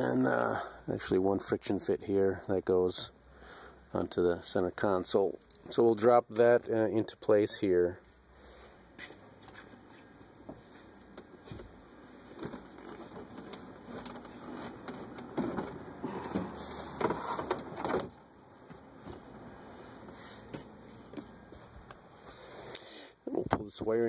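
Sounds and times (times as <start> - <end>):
plastic console scraping and knocking: 10.5 - 19.3.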